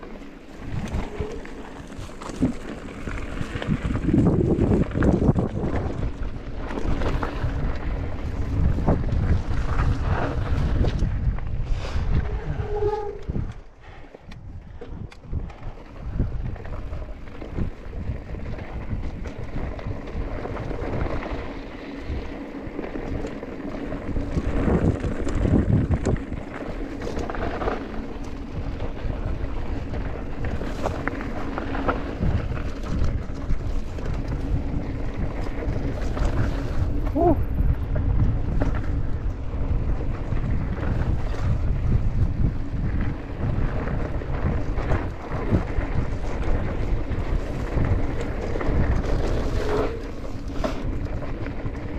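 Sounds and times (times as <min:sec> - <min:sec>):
wind buffeting microphone: 0:00.4 - 0:51.9
bike knocks and rattles: 0:14.5 - 0:51.9.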